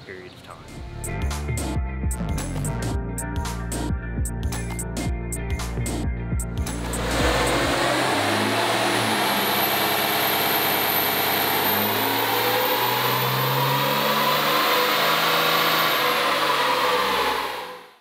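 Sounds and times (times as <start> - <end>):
high turbo whine: 6.4 - 18.0
diesel engine running hard: 6.6 - 18.0.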